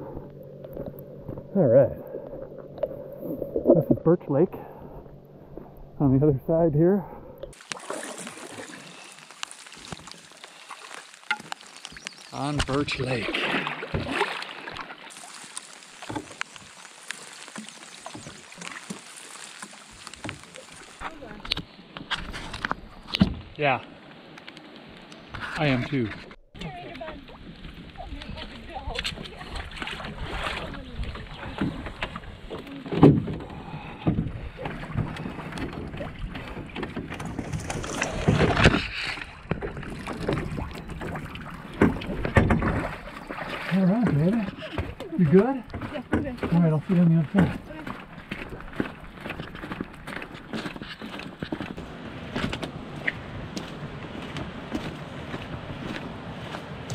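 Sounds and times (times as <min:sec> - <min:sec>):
water swishing along hull: 0:00.0 - 0:56.9
paddles dipping in water: 0:07.2 - 0:56.9
canoe hull knocks and scrapes: 0:29.0 - 0:46.7, 0:47.4 - 0:52.8.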